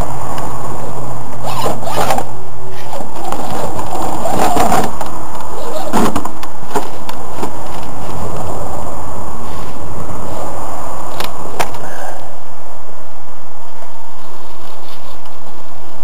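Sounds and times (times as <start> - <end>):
tyres knocking and scraping rocks: 5.9 - 7.9.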